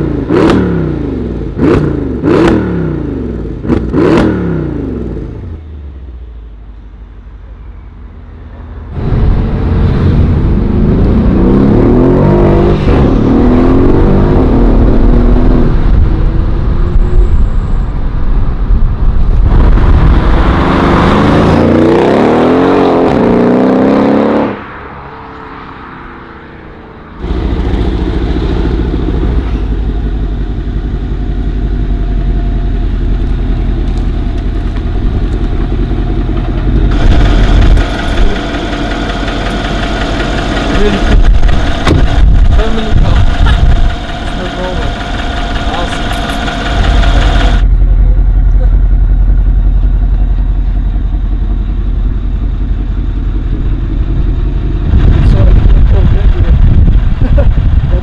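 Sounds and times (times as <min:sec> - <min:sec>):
car engine revving: 0:00.0 - 0:05.5, 0:08.9 - 0:58.0
car accelerating hard: 0:09.0 - 0:16.8, 0:19.2 - 0:29.8, 0:34.7 - 0:49.9
car engine idling: 0:27.1 - 0:58.0.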